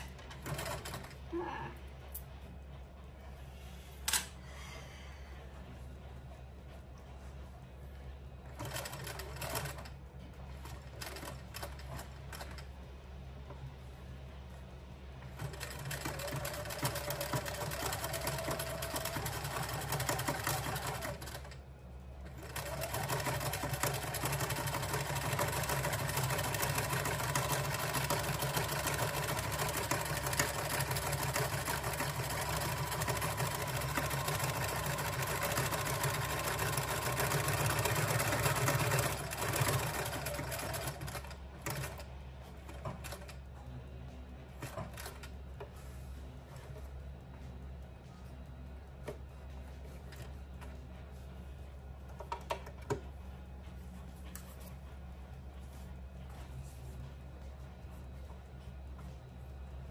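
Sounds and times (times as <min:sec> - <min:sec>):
sewing machine stitching: 0:00.0 - 0:01.2, 0:08.4 - 0:12.6, 0:15.3 - 0:21.6, 0:22.2 - 0:43.4.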